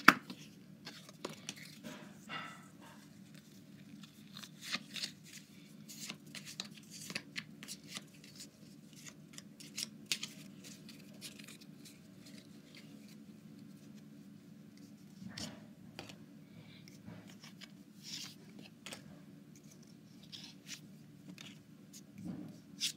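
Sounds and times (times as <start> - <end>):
card wrapper crinkling: 3.3 - 13.2.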